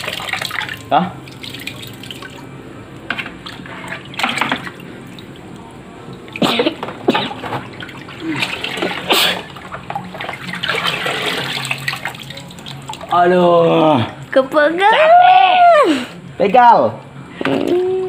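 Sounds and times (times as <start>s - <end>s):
water splashing into bucket: 0.0s - 2.5s, 3.1s - 13.3s
steady low hum: 0.6s - 10.9s.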